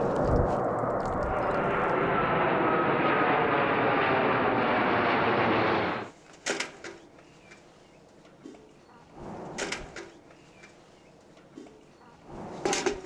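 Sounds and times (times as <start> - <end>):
jet airliner flying overhead: 0.0 - 6.1.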